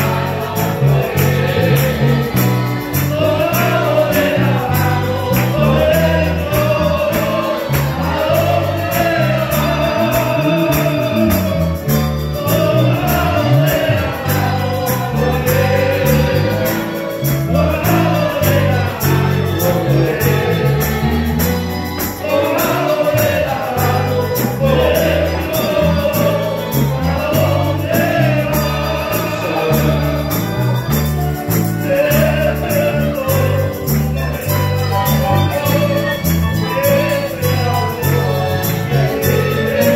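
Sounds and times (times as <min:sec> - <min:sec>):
bass line: 0:00.0 - 0:39.9
congregation singing a hymn: 0:00.0 - 0:39.9
strummed guitars: 0:00.0 - 0:39.9.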